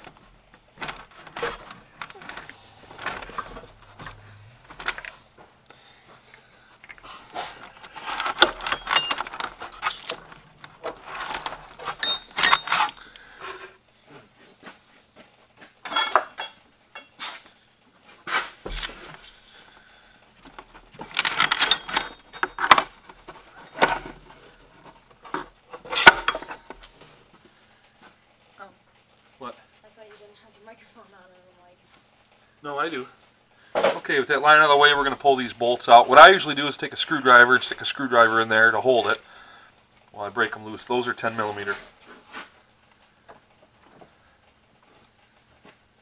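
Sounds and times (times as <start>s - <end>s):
hand tools and metal parts clinking: 6.8s - 13.8s, 15.6s - 17.6s, 20.4s - 26.8s
metallic ring: 12.0s - 12.9s, 15.8s - 17.5s.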